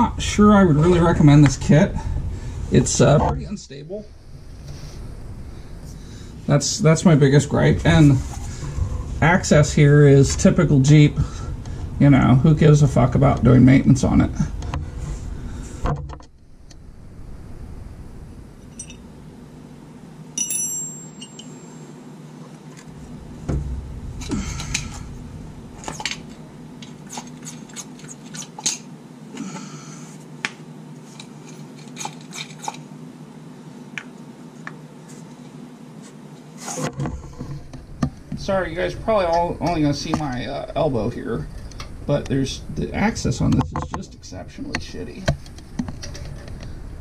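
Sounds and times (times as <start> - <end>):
steady low hum: 0.0 - 47.0
metallic clinks and scrapes: 18.6 - 19.0, 20.4 - 21.8.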